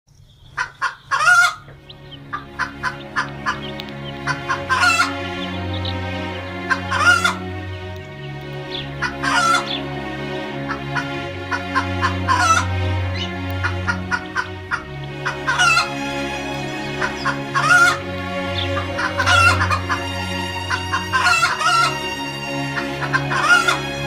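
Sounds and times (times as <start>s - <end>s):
drawn-out chicken calls: 0.3s - 24.0s
chickens clucking: 0.4s - 24.0s
low sustained chord music: 1.6s - 24.0s.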